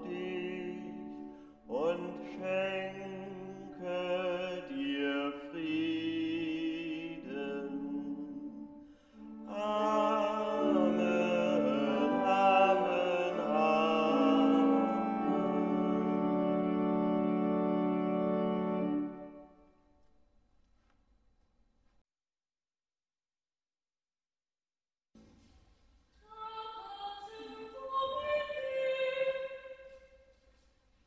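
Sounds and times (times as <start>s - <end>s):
chant-like church singing: 0.0s - 19.5s.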